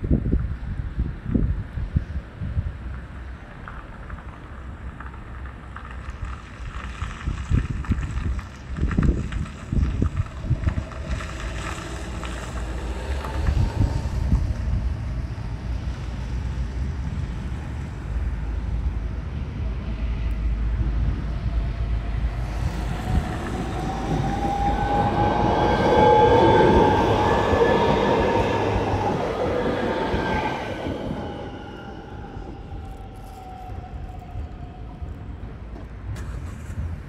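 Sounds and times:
wind buffeting microphone: 0.0s - 37.0s
train approaching: 7.9s - 36.7s.

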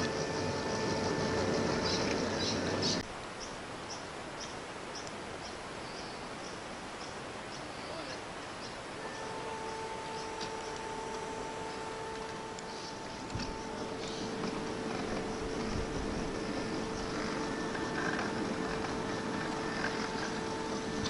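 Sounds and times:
electric motor whine: 0.0s - 3.1s, 8.8s - 21.0s
wheel rumble: 0.0s - 4.5s, 6.3s - 21.0s
faint high ticks: 4.4s - 5.6s.

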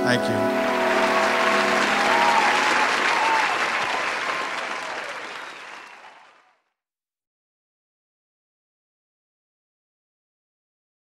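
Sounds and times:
audience applauding: 0.3s - 6.7s.

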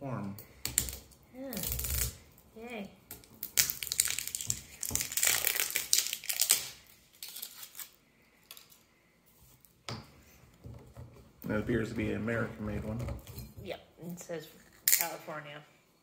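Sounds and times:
seal crinkling and tearing: 0.8s - 2.3s, 3.2s - 8.8s.

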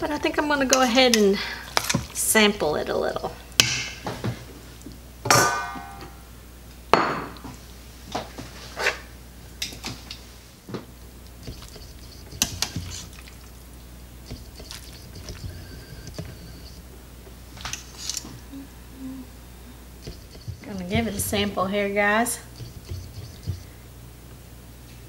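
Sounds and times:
sharp ringing clang: 5.3s - 6.2s.

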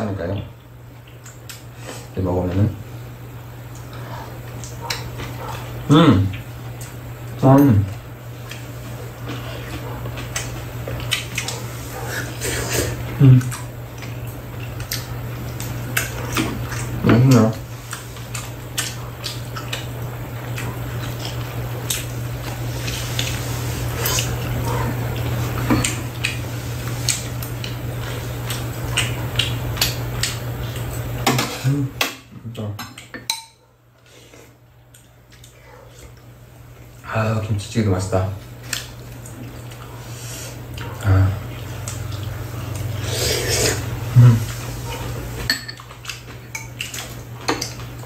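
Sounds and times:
chewing: 3.7s - 31.1s, 34.3s - 36.9s, 38.4s - 48.0s
utensils clinking against bowls: 32.8s - 33.6s, 45.4s - 47.9s.

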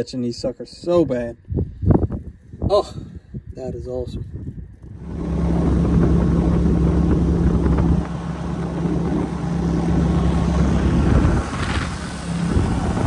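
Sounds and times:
wind buffeting microphone: 0.8s - 13.0s
boat motor droning: 5.0s - 13.0s.

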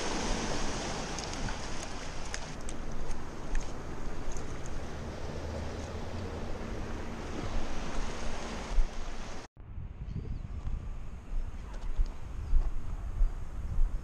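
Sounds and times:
surf washing over rocks: 0.0s - 9.5s
quiet beach ambience: 0.0s - 14.0s
wind rumbling on microphone: 0.0s - 14.0s.

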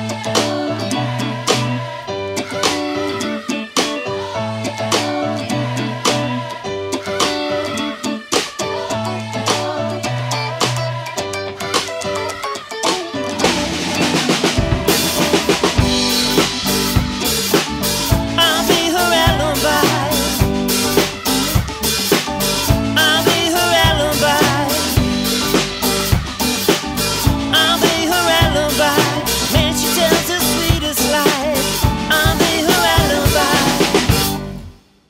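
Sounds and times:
electric bass: 0.0s - 7.9s, 8.8s - 12.4s, 13.2s - 34.8s
electric guitar: 0.0s - 34.9s
drum kit beat: 9.4s - 34.6s.

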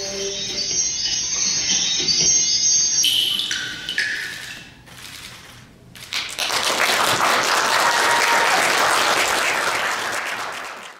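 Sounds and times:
music: 0.0s - 4.4s
audience applauding: 6.1s - 10.9s.

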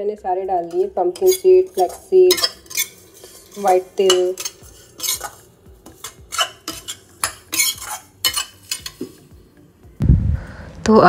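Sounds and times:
spatula scraping seeds in metal pan: 0.6s - 9.2s.

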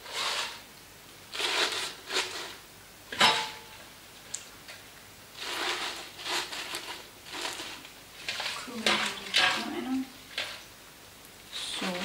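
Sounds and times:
spinach leaves rustling: 5.4s - 10.7s, 11.5s - 12.0s.

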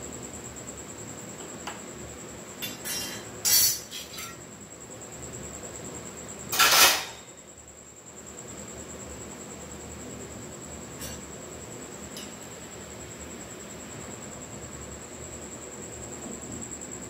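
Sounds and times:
kitchen utensils clinking: 2.6s - 4.4s, 6.5s - 7.2s.

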